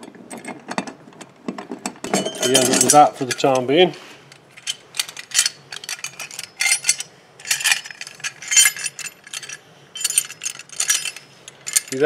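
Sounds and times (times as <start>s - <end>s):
metal bracket and bolts clinking: 2.0s - 3.8s, 4.5s - 12.0s.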